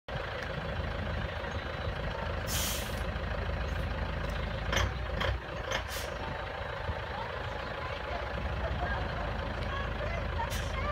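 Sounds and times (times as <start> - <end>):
engine low rumble: 0.1 - 10.9
short hiss: 2.5 - 3.0.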